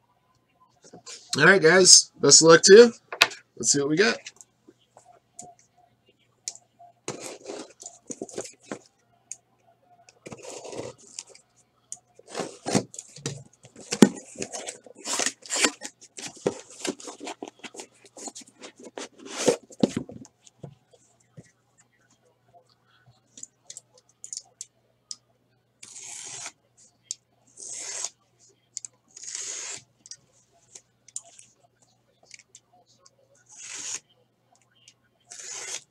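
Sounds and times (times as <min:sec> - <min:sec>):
cardboard scraping and rustling: 0:07.1 - 0:08.8, 0:10.3 - 0:11.1, 0:12.3 - 0:20.2.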